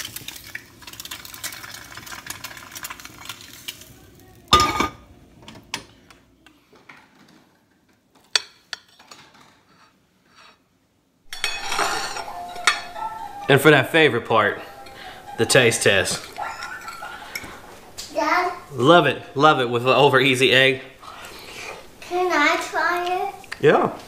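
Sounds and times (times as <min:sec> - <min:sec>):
egg scraping from frying pan: 0:11.3 - 0:12.3
fork clinking on ceramic plate: 0:11.3 - 0:13.0, 0:16.1 - 0:17.5
metal clank: 0:11.3 - 0:13.0.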